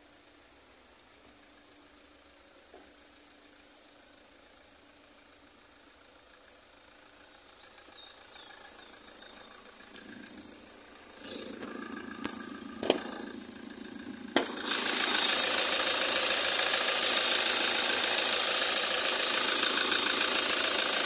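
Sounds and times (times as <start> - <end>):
diesel engine idling: 4.5 - 21.0.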